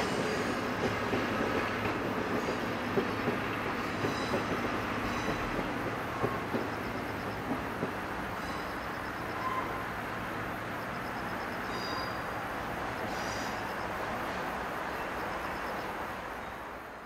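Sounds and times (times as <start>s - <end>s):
train wheel clicks over rail joints: 0.0s - 9.4s
train rushing noise: 0.0s - 17.0s.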